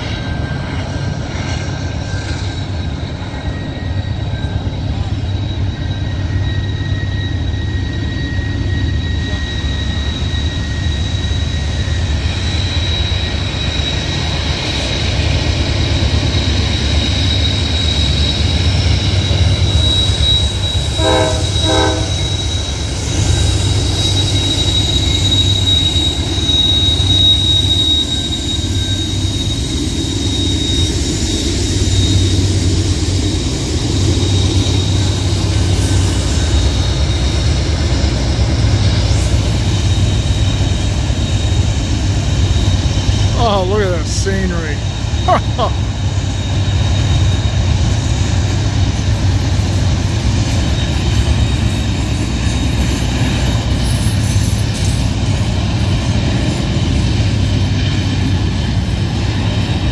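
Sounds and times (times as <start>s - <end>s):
diesel locomotives rumbling: 0.0s - 59.9s
train wheel squeal: 0.0s - 59.9s
train horn toots: 20.8s - 22.5s.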